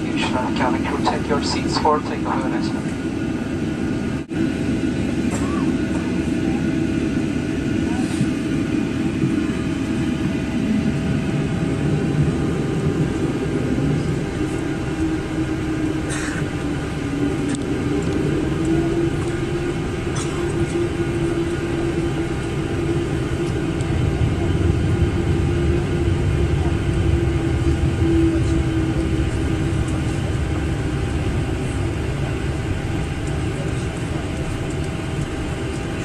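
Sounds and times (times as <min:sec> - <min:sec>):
aircraft engine hum: 0:00.0 - 0:36.0.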